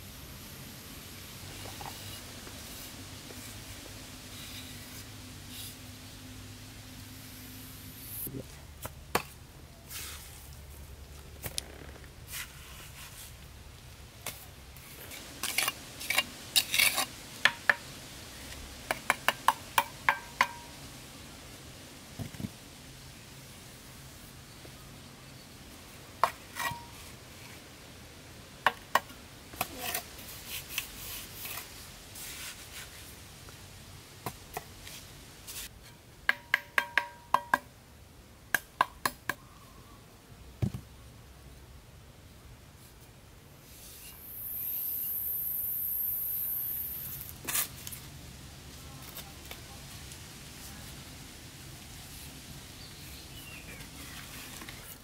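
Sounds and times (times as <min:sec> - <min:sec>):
high-pitched hiss: 0:00.0 - 0:08.4, 0:43.6 - 0:47.7
hand tools striking wood: 0:18.9 - 0:20.7, 0:36.2 - 0:37.7, 0:38.5 - 0:39.4.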